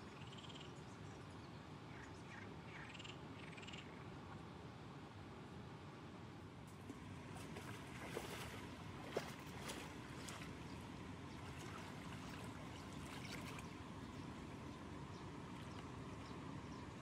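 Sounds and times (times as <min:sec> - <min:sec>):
water splashing gently: 0:06.6 - 0:16.4.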